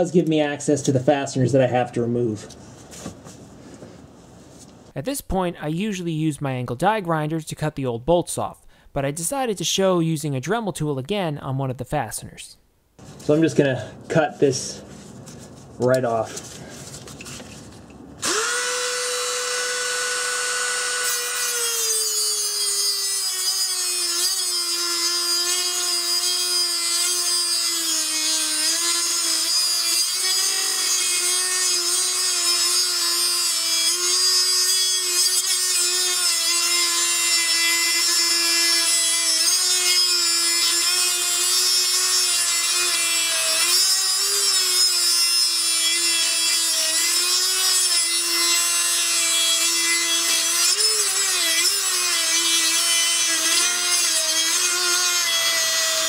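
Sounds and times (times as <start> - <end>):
rotary tool cutting metal: 18.2 - 56.0.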